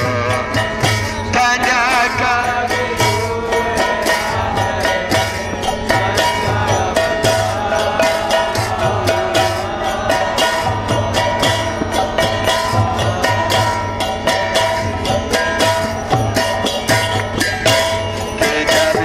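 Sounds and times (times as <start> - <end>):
hand cymbals clashing: 0.0 - 19.0
person singing into a microphone: 18.4 - 19.0.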